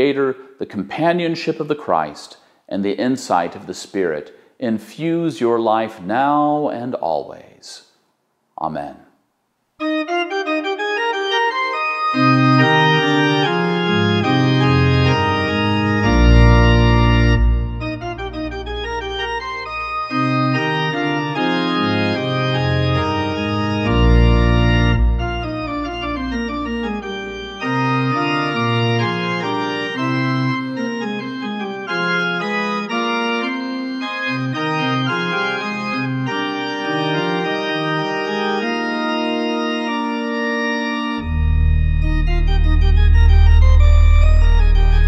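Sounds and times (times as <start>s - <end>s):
organ playing chords: 9.8s - 45.0s
music with heavy bass: 41.2s - 45.0s.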